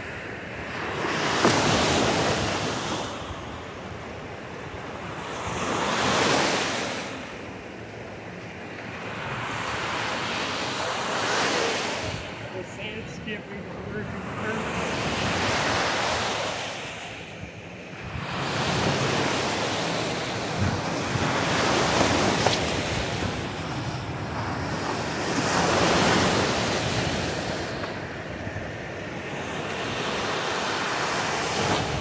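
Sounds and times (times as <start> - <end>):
small waves breaking on shore: 0.0 - 32.0
wind buffeting microphone: 17.3 - 30.3
skimboard slapping wet sand: 20.6 - 23.5.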